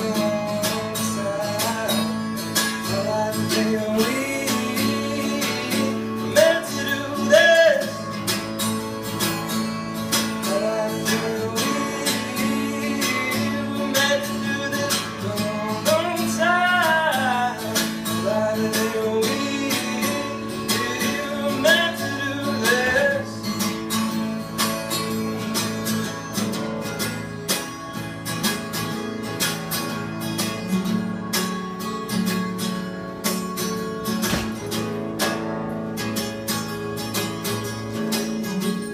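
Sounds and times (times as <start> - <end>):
man singing: 0.0 - 8.2, 10.2 - 23.6
acoustic guitar strumming: 0.0 - 38.9.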